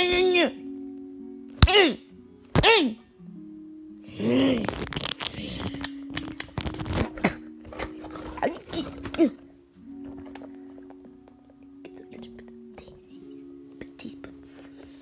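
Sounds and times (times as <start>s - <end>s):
background music held notes: 0.0s - 15.0s
rustling and bumping of puppets: 4.6s - 9.4s.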